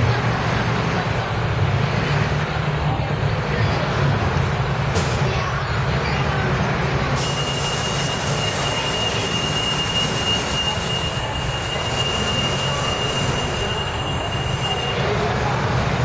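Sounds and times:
bus diesel rumble: 0:00.0 - 0:16.0
high-pitched whine: 0:07.2 - 0:15.3.

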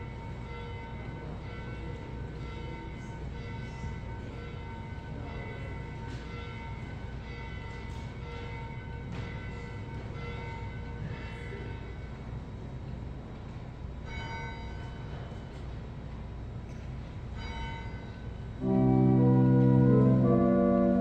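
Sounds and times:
church bell ringing: 0:00.0 - 0:12.0, 0:17.4 - 0:21.0.

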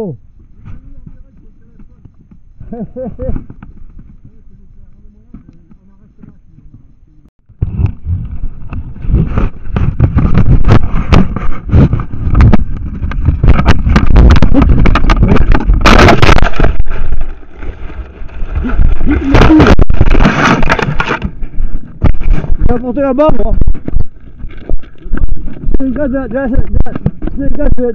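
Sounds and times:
microphone handling noise: 0:00.0 - 0:27.9
heavy rumble: 0:00.2 - 0:27.8
knocks and jolts: 0:07.5 - 0:27.8.

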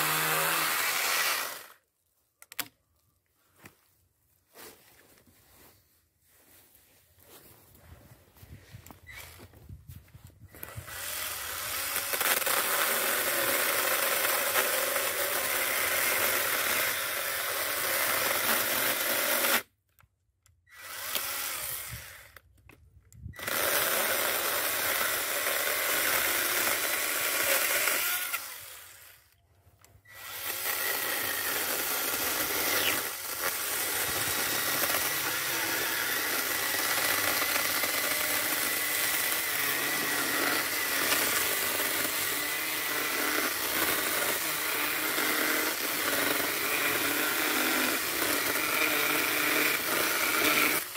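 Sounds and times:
electric chainsaw cutting wood: 0:00.0 - 0:01.8, 0:10.5 - 0:19.7, 0:20.7 - 0:22.5, 0:23.4 - 0:29.4, 0:30.1 - 0:50.9.

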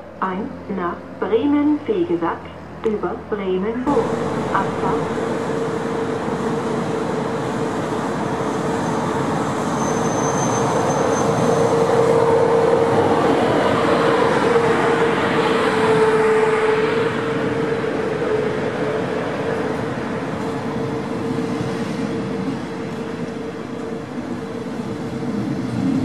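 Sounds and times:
electric locomotive hum: 0:00.0 - 0:26.0
train wheels on rails: 0:03.8 - 0:26.0.

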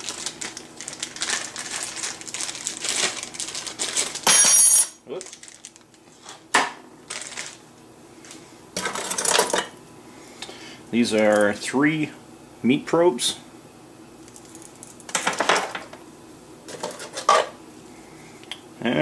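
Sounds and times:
plastic wrapping rustling: 0:00.0 - 0:04.3, 0:05.0 - 0:06.4, 0:07.0 - 0:08.4.

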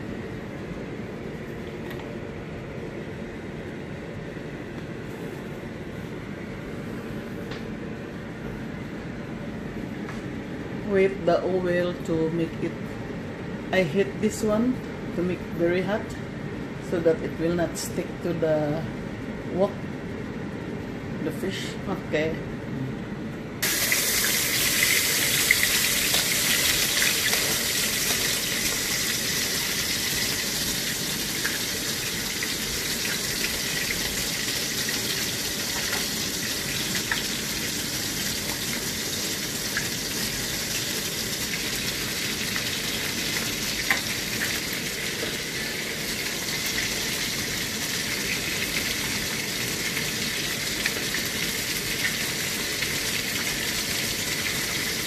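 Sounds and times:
fish sizzling in hot oil: 0:23.6 - 0:55.0.

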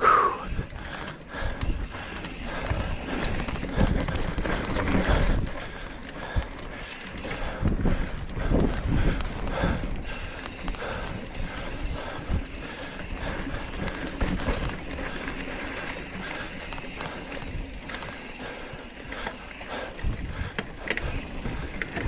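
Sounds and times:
bike rattling: 0:00.0 - 0:22.0
bike freehub ratcheting: 0:00.4 - 0:22.0
tyres rolling on dirt: 0:00.5 - 0:22.0.

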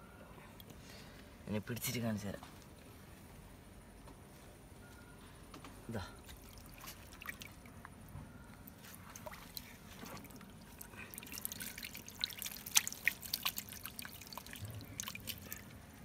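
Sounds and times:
water dripping and splashing: 0:06.2 - 0:07.9, 0:08.6 - 0:16.0.

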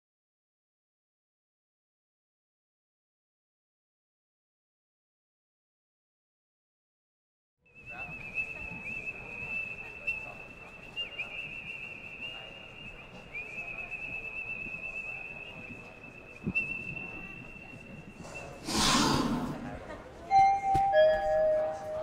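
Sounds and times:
high whistling tone: 0:07.7 - 0:19.4, 0:20.3 - 0:22.0.

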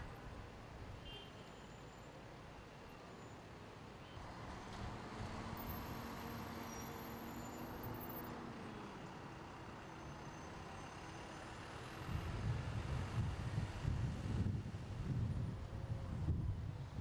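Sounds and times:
street traffic noise: 0:00.0 - 0:17.0
wind buffeting microphone: 0:12.1 - 0:17.0.

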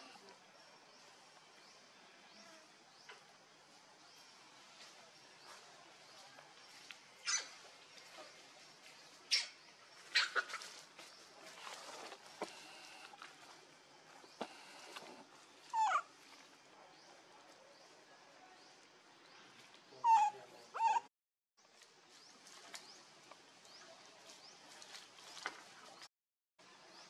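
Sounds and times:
baby monkey crying: 0:15.7 - 0:16.1, 0:20.0 - 0:21.1.

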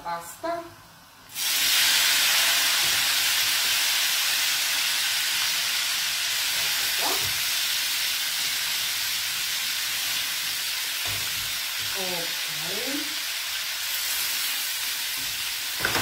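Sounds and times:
pasta sizzling in fat: 0:00.8 - 0:16.0.

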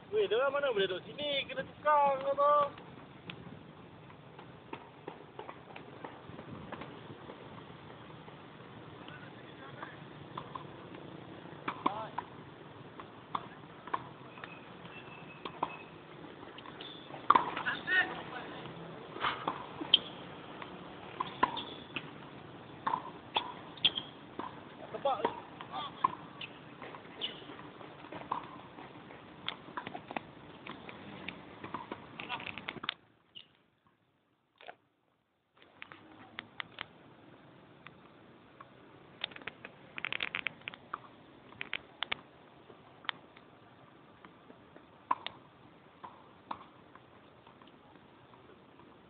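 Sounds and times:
tennis balls hit and bouncing: 0:02.0 - 0:34.0, 0:37.8 - 0:43.6, 0:44.2 - 0:49.0
shoe squeak: 0:14.2 - 0:16.0, 0:16.7 - 0:17.9, 0:19.2 - 0:20.3, 0:21.1 - 0:22.1, 0:23.4 - 0:24.2, 0:26.3 - 0:27.6
tennis ball pops: 0:16.6 - 0:17.7, 0:22.8 - 0:24.6, 0:45.1 - 0:45.4.

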